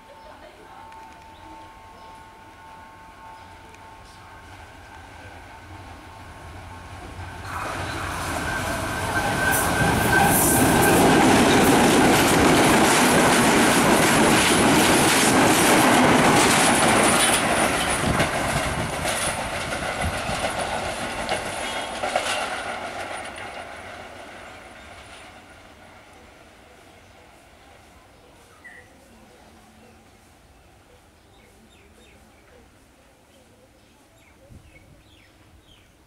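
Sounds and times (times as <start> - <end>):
diesel locomotive passing: 0.0 - 33.6
train wheels clattering on rails: 6.8 - 26.2
high wheel squeal: 7.4 - 11.6.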